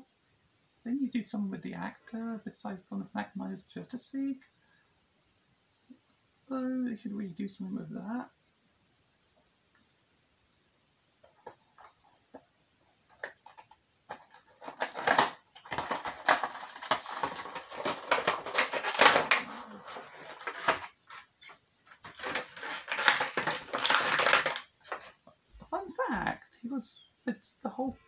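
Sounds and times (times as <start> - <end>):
plastic crinkling: 11.2 - 12.4, 13.1 - 25.3.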